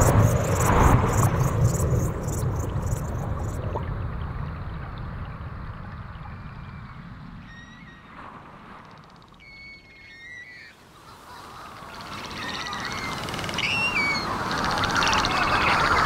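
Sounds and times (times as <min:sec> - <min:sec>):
insects chirping: 0:00.0 - 0:03.7, 0:11.4 - 0:16.0
faint bird calls: 0:08.8 - 0:16.0.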